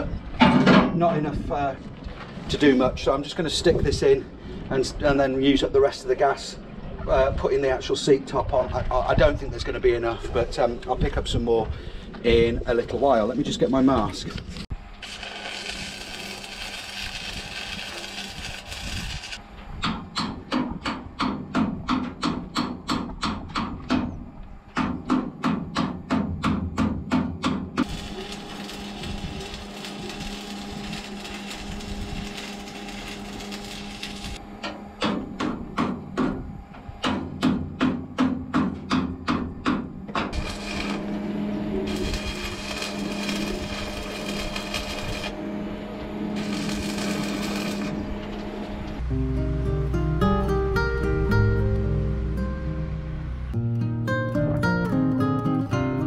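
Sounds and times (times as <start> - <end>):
welding arc crackling: 14.8 - 19.4, 27.8 - 34.4, 40.3 - 45.4, 46.1 - 48.4.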